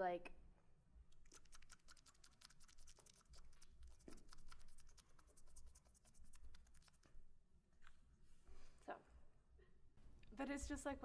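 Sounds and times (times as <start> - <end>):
mouth clicking: 1.1 - 5.4.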